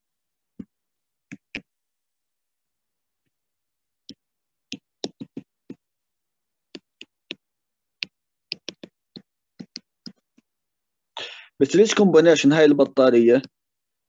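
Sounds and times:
stylus tapping on tablet: 0.5 - 1.8, 4.0 - 6.0, 6.7 - 10.6.

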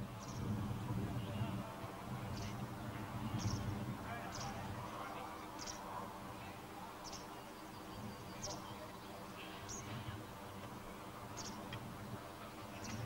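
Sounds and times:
murmur of distant voices: 0.0 - 13.0.

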